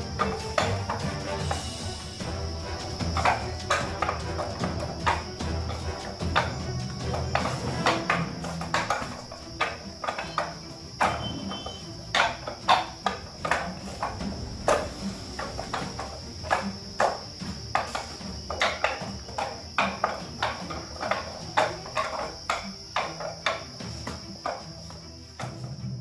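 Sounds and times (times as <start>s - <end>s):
hands striking wooden dummy: 0.0s - 26.0s.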